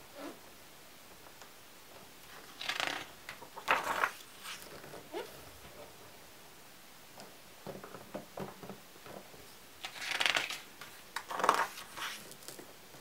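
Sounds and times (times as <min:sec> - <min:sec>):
page turning swish: 0:03.7 - 0:04.7, 0:11.5 - 0:12.3.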